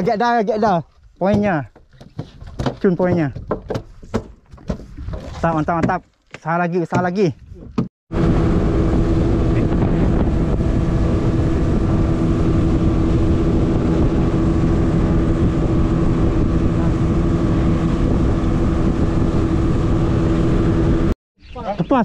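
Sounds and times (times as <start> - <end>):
wind buffeting microphone: 7.3 - 21.7
boat engine droning: 8.1 - 21.2.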